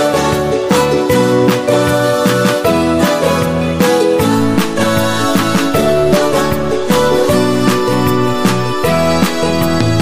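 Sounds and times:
background music with steady beat: 2.5s - 10.0s.

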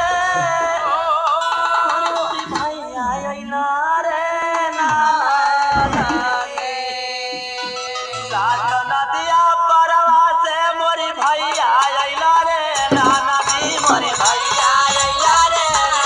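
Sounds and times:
folk song melody: 4.2s - 16.0s
hand drum percussion: 12.6s - 16.0s.

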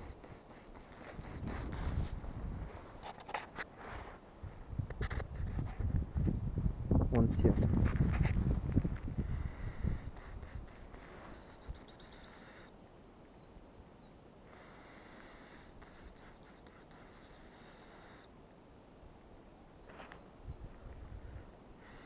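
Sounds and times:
bird whistle decoy trill: 0.0s - 2.0s, 9.2s - 12.7s, 14.5s - 18.3s, 21.8s - 22.0s
faint short falling whistles: 17.0s - 18.3s.

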